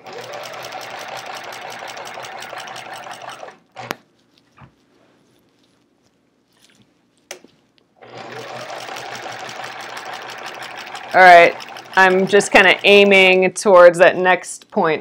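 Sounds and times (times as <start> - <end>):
sewing machine stitching: 0.0 - 4.0, 8.0 - 13.4.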